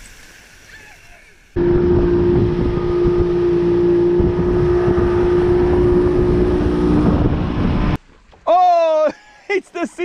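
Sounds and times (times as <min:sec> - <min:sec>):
outboard motor running: 0:01.6 - 0:08.0.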